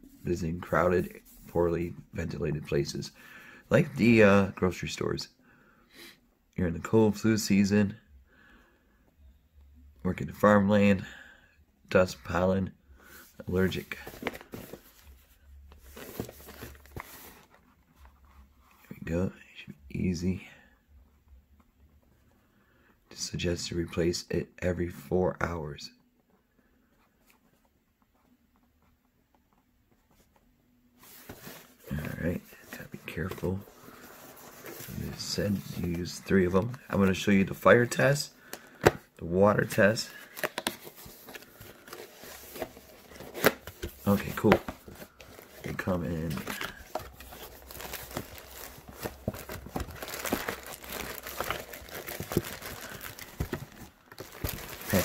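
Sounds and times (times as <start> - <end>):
cardboard box handled: 13.8 - 15.1, 15.8 - 17.6, 40.4 - 55.0
soft rustle: 26.3 - 37.1
plastic crinkling: 40.0 - 55.0.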